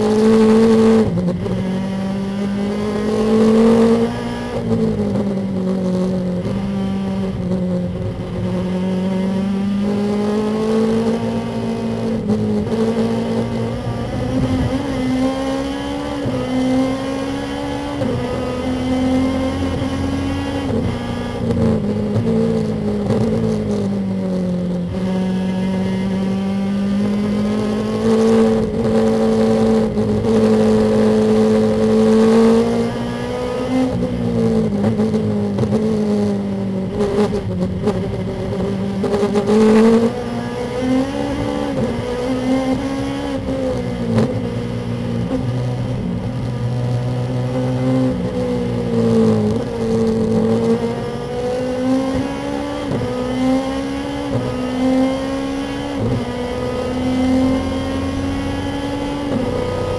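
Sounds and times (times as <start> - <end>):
race car engine at high revs: 0.0 - 59.9
road and wind noise: 0.0 - 59.9.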